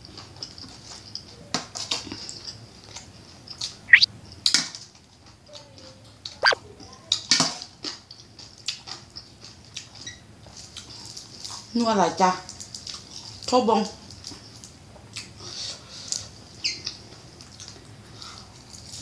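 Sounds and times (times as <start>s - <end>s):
chewing and mouth clicks: 7.8s - 11.7s, 12.5s - 13.5s, 14.1s - 15.3s.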